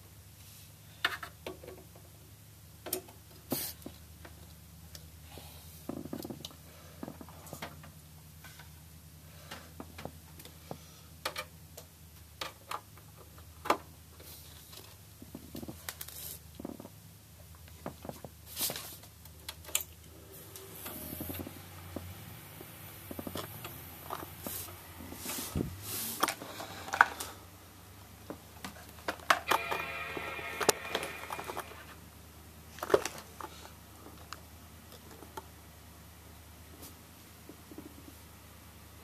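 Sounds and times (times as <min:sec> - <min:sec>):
low hum: 0:29.4 - 0:32.6.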